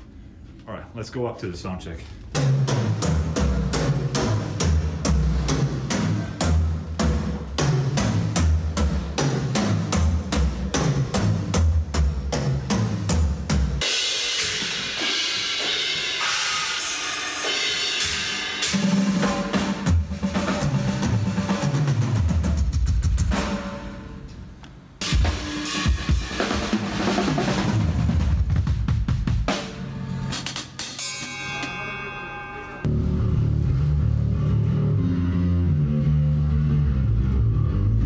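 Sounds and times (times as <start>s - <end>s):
rock drum kit playing: 2.4s - 24.3s, 25.0s - 31.9s.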